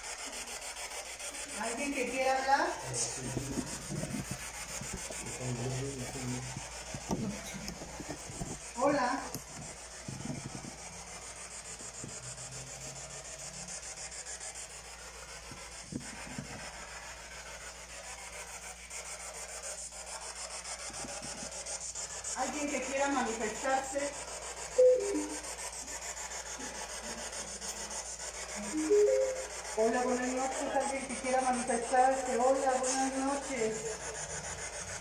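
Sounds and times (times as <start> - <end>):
pulsing radio static hiss: 24.7 - 25.9, 28.4 - 34.0.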